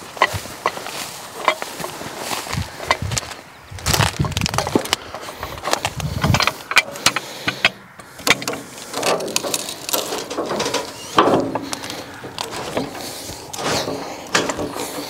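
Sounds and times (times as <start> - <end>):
log scraping on steel bed: 0.0 - 15.0
steel hook clanking on log: 1.4 - 2.0, 4.6 - 15.0.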